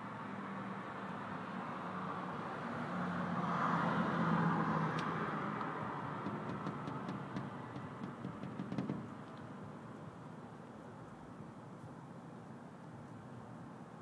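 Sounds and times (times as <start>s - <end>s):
vehicle passing by: 0.4s - 9.7s.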